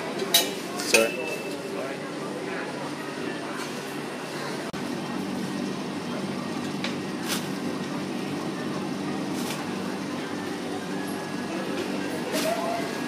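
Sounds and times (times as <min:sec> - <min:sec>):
faint indistinct voices: 0:00.0 - 0:13.0.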